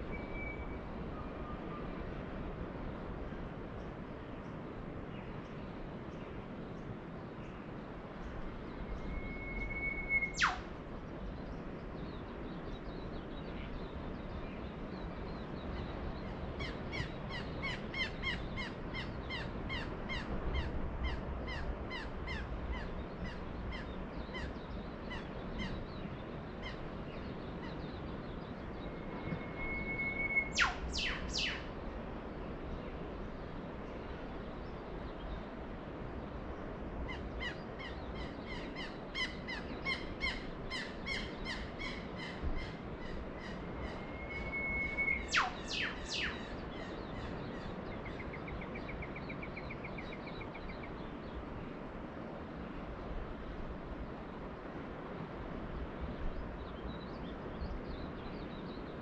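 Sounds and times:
low background noise: 0:00.0 - 0:59.0
bird short high calls: 0:09.0 - 0:10.7, 0:28.9 - 0:31.7, 0:38.5 - 0:47.4
bird whistle with whip-crack: 0:09.2 - 0:10.6, 0:29.3 - 0:31.7, 0:44.4 - 0:46.4.

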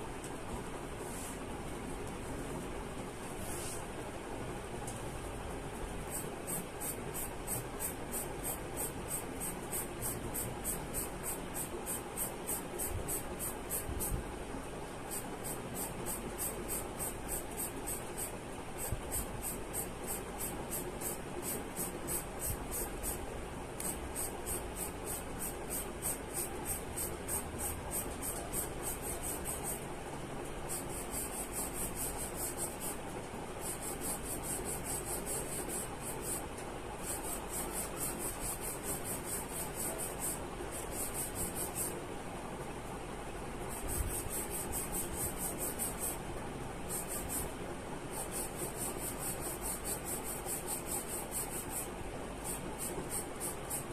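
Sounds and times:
pencil scratching on paper: 0:06.1 - 0:14.2, 0:15.1 - 0:23.2, 0:23.8 - 0:29.8, 0:30.7 - 0:33.0, 0:33.6 - 0:36.4, 0:37.0 - 0:42.0, 0:43.7 - 0:46.2, 0:46.9 - 0:47.5, 0:48.1 - 0:53.9.

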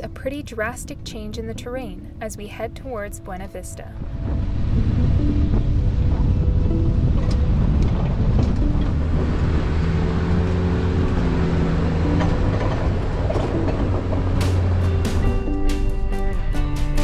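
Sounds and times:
engine and tyre rumble: 0:04.0 - 0:17.0.

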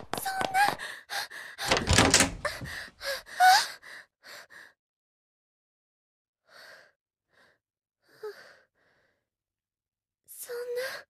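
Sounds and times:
woman gasping and sobbing: 0:00.5 - 0:04.8.

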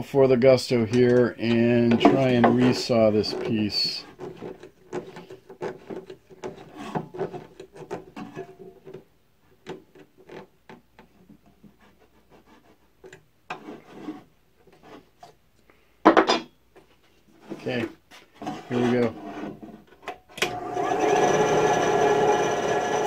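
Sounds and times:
wood block sliding on metal table: 0:18.4 - 0:19.6.

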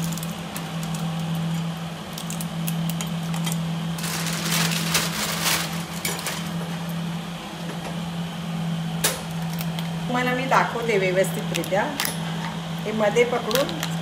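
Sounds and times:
crab shells cracking: 0:00.0 - 0:03.6.

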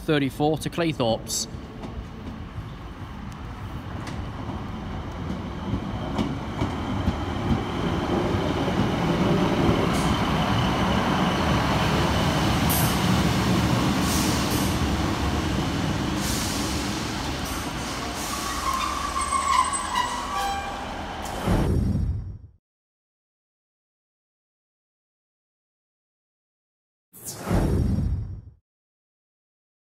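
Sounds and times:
diesel railcar engine running: 0:01.2 - 0:21.6
brake squeal: 0:17.6 - 0:21.4.

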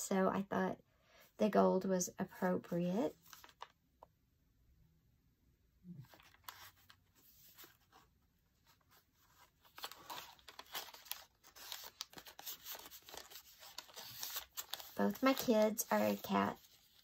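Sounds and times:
paper pages rustling: 0:03.1 - 0:03.7, 0:06.0 - 0:17.0.

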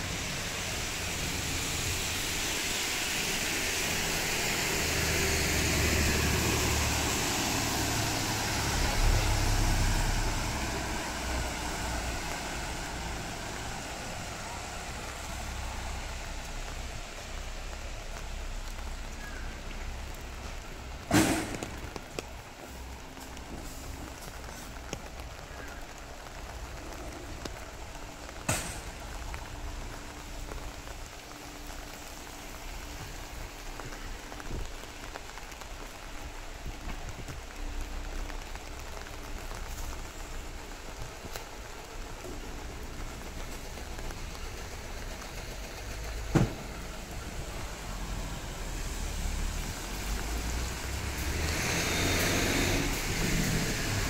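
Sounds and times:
steady rain falling: 0:00.0 - 0:54.0.

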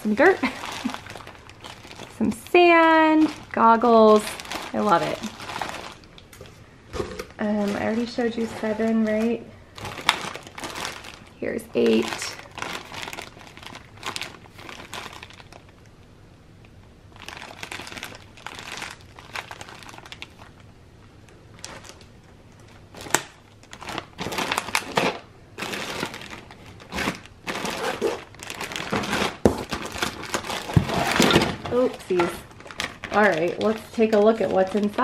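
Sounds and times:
plastic bags crinkling: 0:00.0 - 0:15.9, 0:17.1 - 0:35.0.

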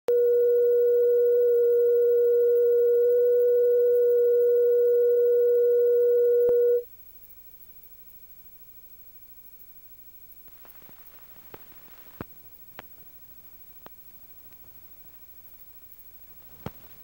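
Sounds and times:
steady pure reference tone: 0:00.1 - 0:06.8.

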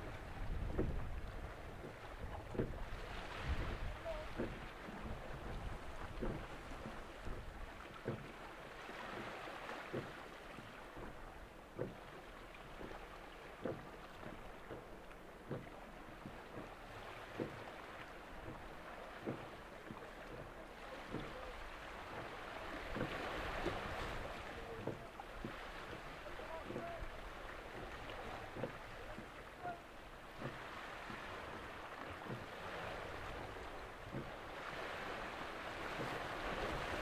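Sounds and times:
water on shore: 0:00.0 - 0:37.0
wind: 0:00.0 - 0:37.0
soft low knock: 0:00.5 - 0:01.2.

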